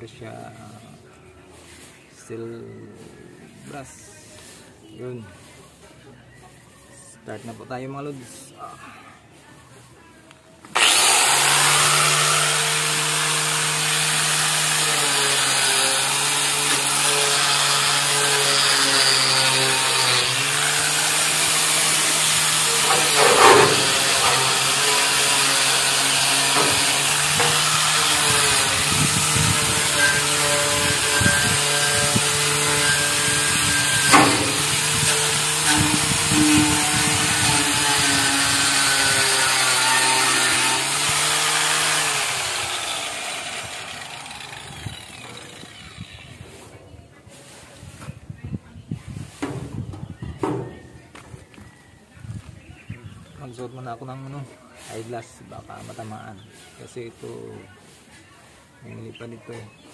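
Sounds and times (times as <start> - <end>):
angle grinder wire brush scraping: 10.7 - 48.1, 54.8 - 59.1.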